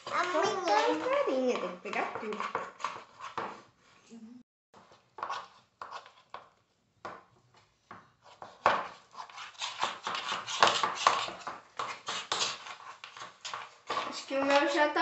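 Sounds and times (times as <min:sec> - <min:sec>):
fingers scraping plastic bowl: 0:00.0 - 0:03.5, 0:08.3 - 0:14.8.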